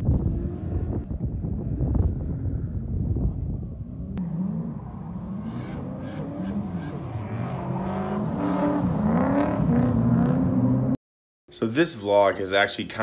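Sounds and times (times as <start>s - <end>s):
car engines revving: 0.0s - 3.0s, 3.7s - 11.0s.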